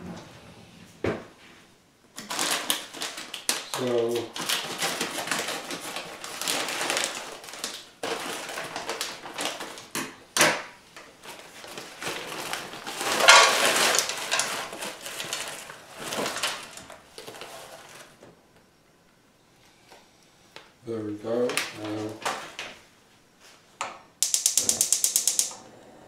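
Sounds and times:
plastic bag crinkling: 2.2 - 9.9, 11.2 - 18.2.

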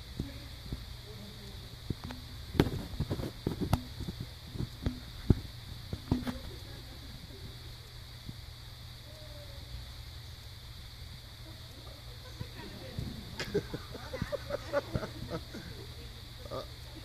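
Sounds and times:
steady low hum: 0.0 - 17.0
sharp taps and knocks: 1.9 - 6.5.

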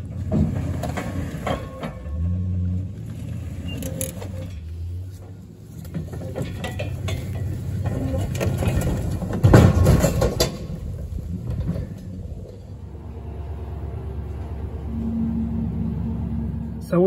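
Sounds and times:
metal clanks and knocks: 0.0 - 2.6, 3.6 - 12.8
low rumbling: 0.0 - 17.0.

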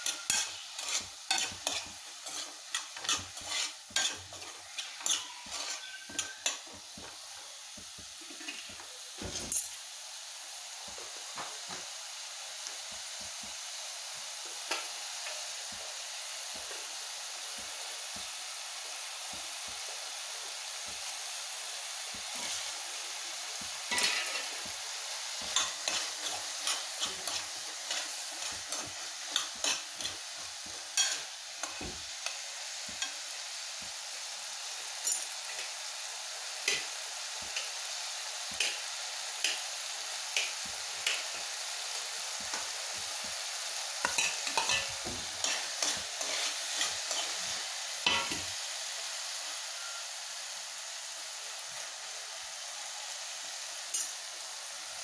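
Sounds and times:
utensil scraping metal pan: 0.0 - 6.6
food sizzling in pan: 0.0 - 55.0.

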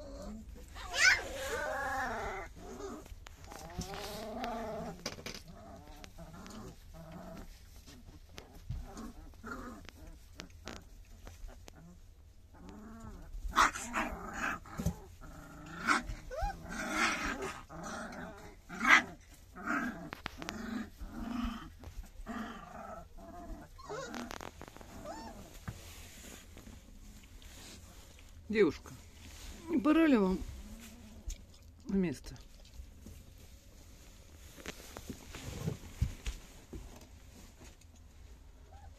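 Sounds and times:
puppies whining and squealing: 0.0 - 4.6, 16.1 - 17.3, 23.4 - 26.1.

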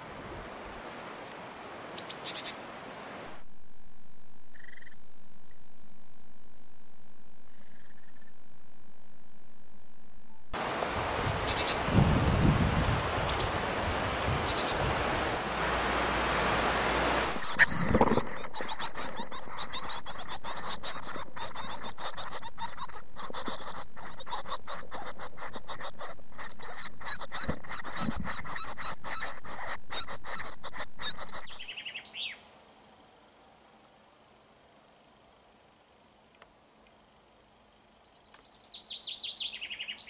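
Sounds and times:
background hiss: 0.0 - 40.0
nestlings chirping rapidly: 17.3 - 31.7
short high bird chirps: 17.3 - 32.2.

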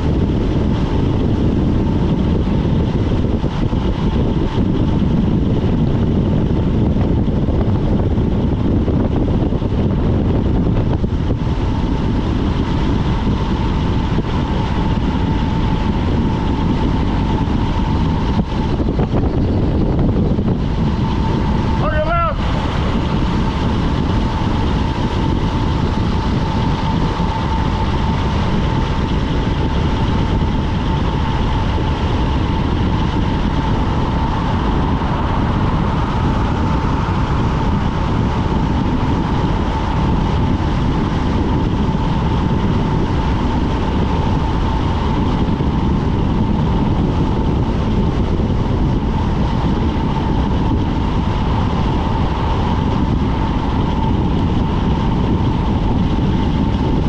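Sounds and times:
high whine: 0.0 - 57.0
wind rushing over camera: 0.0 - 57.0
bike tyres rolling on asphalt: 10.7 - 19.9, 22.4 - 57.0.

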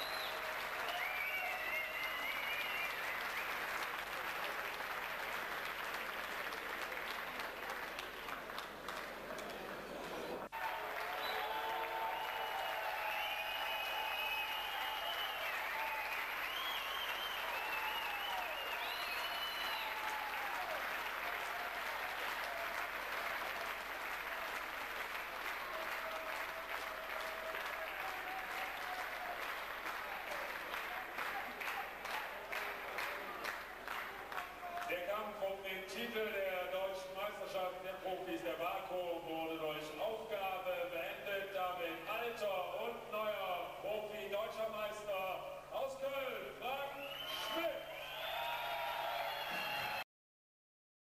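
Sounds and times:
crowd applauding: 0.0 - 35.0, 47.0 - 50.1.

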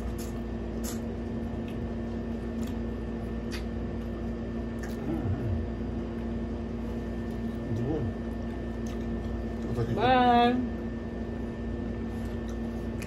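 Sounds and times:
lip smacking and finger sucking: 0.0 - 1.9, 2.5 - 5.1
steady background hum: 0.0 - 13.0.

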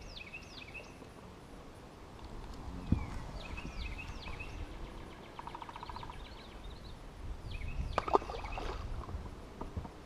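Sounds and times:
birds calling: 2.4 - 9.1
bird trill: 2.8 - 8.7.

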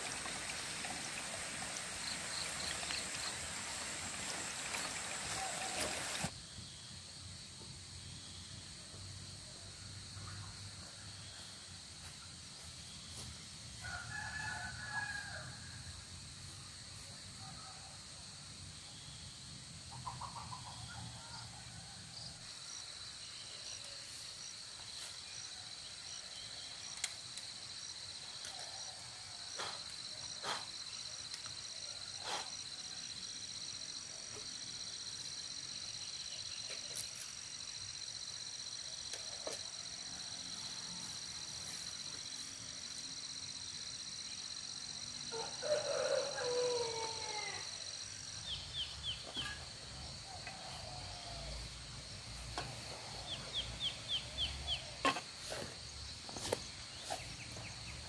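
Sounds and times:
rooster crowing: 13.8 - 15.8, 45.3 - 47.9.

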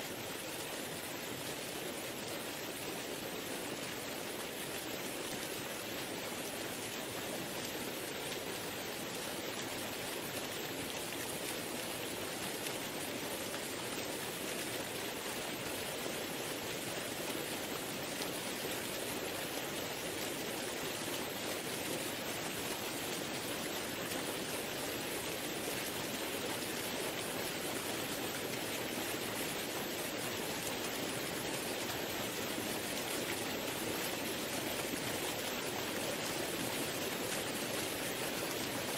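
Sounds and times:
rushing water: 0.0 - 38.9.

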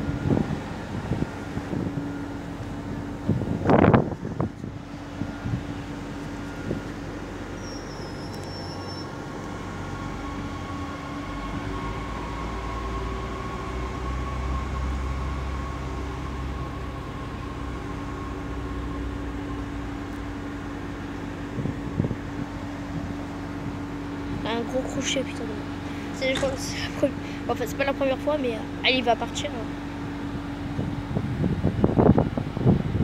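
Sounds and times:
train engine humming: 0.0 - 33.0.

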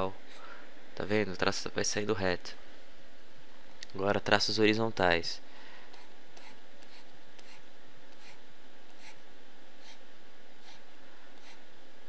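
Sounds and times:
tablet pen scratching: 5.9 - 9.2, 9.8 - 10.0, 10.6 - 11.6.

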